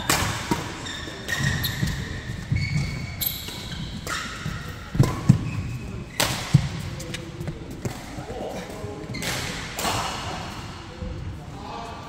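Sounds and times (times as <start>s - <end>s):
racket hitting shuttlecock: 0.0s - 2.1s, 2.7s - 5.5s, 6.1s - 6.8s
sneakers squeaking: 0.0s - 10.2s.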